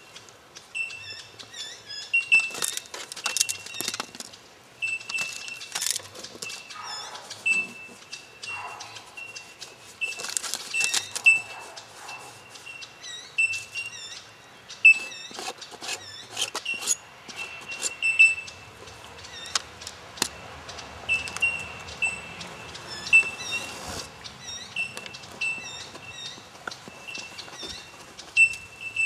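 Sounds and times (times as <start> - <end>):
birds chirping: 0.0 - 29.0
paint scraping across a board: 6.1 - 13.9, 14.8 - 18.1, 22.9 - 24.2.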